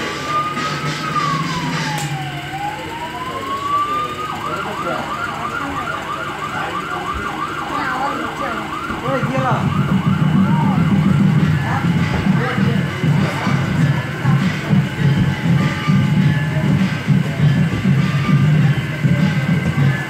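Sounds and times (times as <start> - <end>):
electronic siren wailing and yelping: 0.0 - 14.5
crowd voices: 0.0 - 20.0.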